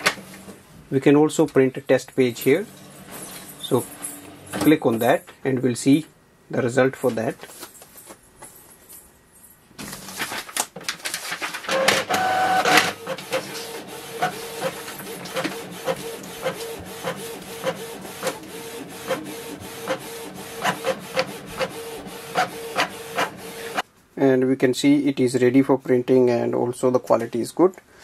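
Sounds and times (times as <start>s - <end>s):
printer feeding paper: 9.9s - 23.8s
print head clicking: 11.7s - 23.8s
print head humming: 11.7s - 23.8s
printer feed whine: 11.7s - 23.8s.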